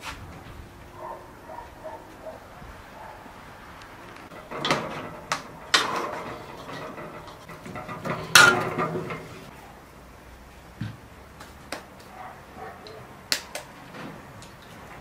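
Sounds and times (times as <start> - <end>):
metal spoon clanking on pot: 4.3 - 9.5.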